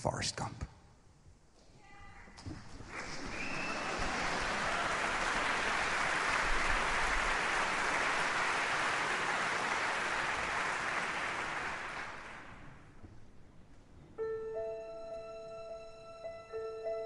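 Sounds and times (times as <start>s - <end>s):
audience applauding: 2.7s - 12.9s.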